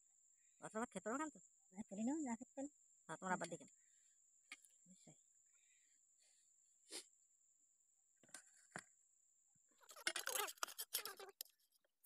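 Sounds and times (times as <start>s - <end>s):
spoon scraping metal plates: 10.0s - 11.4s.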